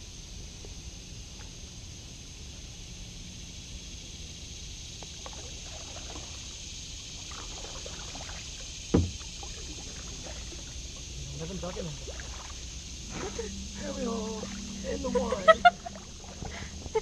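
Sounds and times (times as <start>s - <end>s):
steady high hiss: 0.0s - 17.0s
water trickles and splashes: 0.2s - 17.0s
paddle dipping and dripping: 4.9s - 17.0s.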